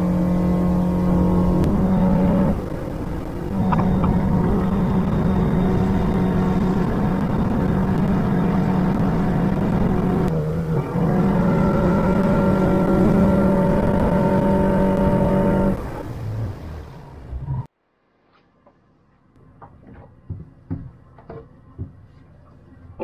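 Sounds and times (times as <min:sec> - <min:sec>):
boat engine running: 0:00.0 - 0:17.7
water noise: 0:00.0 - 0:17.7.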